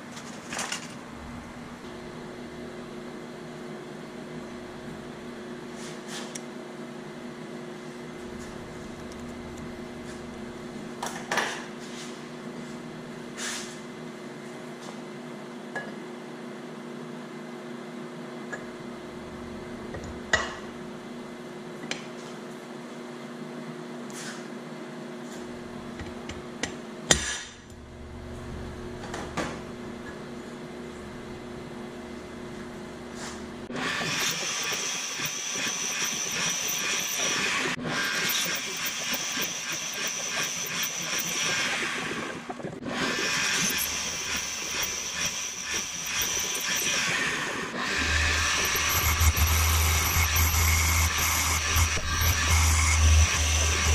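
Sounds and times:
machine tool motor humming: 0:30.8 - 0:53.9
hissing whir: 0:32.6 - 0:53.9.

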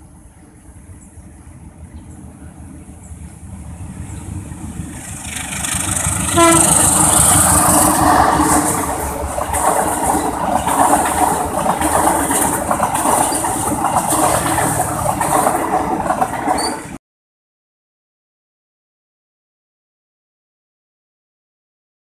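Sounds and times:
diesel locomotive passing: 0:00.0 - 0:17.0
train coaches clattering over rails: 0:00.0 - 0:17.0.

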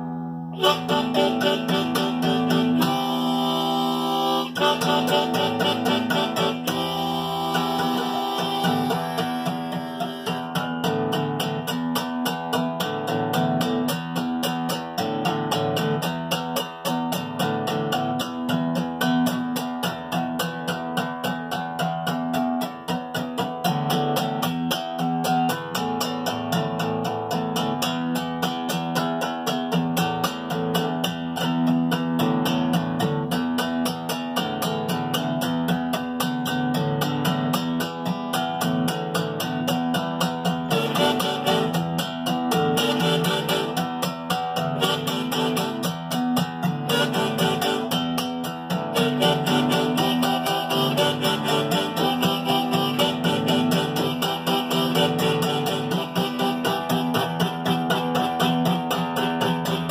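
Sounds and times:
acoustic guitar strumming: 0:00.0 - 0:59.9
harmonica melody: 0:00.5 - 0:11.9, 0:39.4 - 0:59.9.

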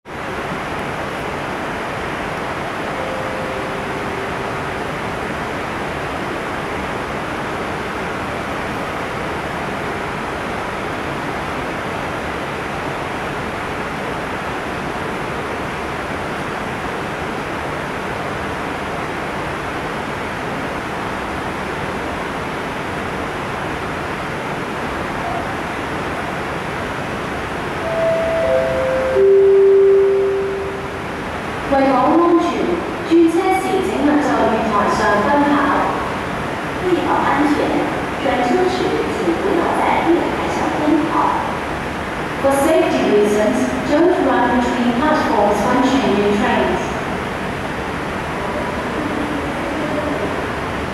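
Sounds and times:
metro platform rushing noise: 0:00.1 - 0:50.9
descending electronic chime: 0:27.8 - 0:30.9.

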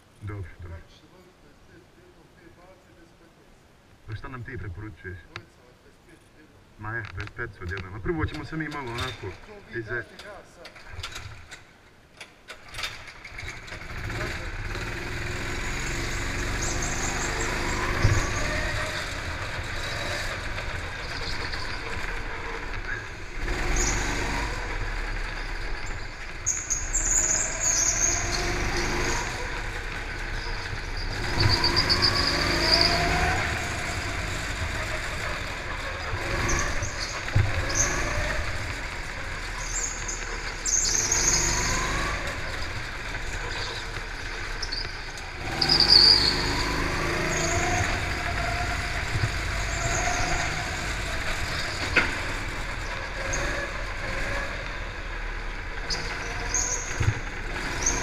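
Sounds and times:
go-kart engine accelerating: 0:12.7 - 0:58.0
high-pitched squeals: 0:13.4 - 0:58.0.

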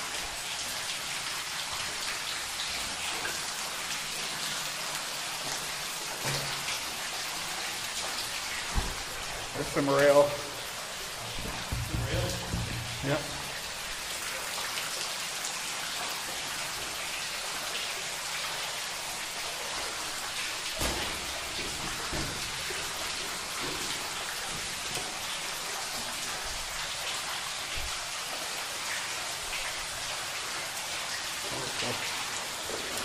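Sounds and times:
water pattering and hissing: 0:00.0 - 0:33.0
dull thumps: 0:11.4 - 0:13.1.

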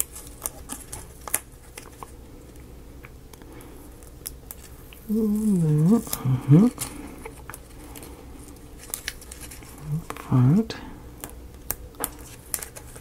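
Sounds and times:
man humming: 0:05.0 - 0:06.8
paper pages clicking: 0:08.8 - 0:10.2, 0:11.2 - 0:13.0.

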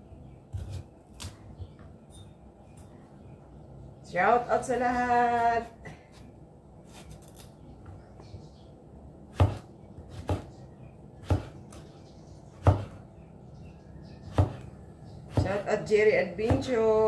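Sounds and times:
knife chopping on wooden board: 0:09.3 - 0:10.5, 0:11.2 - 0:11.8, 0:12.6 - 0:13.0, 0:14.3 - 0:14.7, 0:15.3 - 0:15.7, 0:16.4 - 0:16.8.

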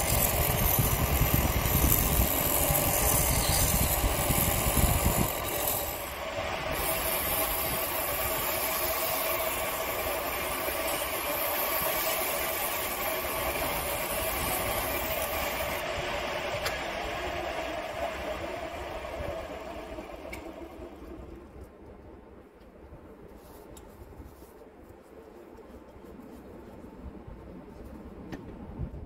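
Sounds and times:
chisel cutting spinning wood: 0:00.0 - 0:21.4
lathe motor humming: 0:00.0 - 0:21.6
sandpaper hissing on wood: 0:06.7 - 0:15.8.

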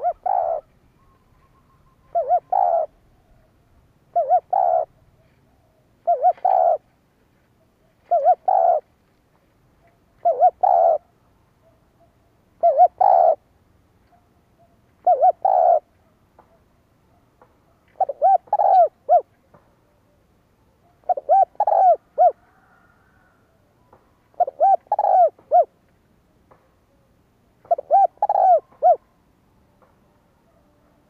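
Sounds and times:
dove cooing: 0:00.0 - 0:07.0, 0:07.9 - 0:08.9, 0:09.8 - 0:12.0, 0:12.6 - 0:13.5, 0:14.1 - 0:16.7, 0:17.8 - 0:20.2, 0:20.8 - 0:25.8, 0:26.9 - 0:29.2.

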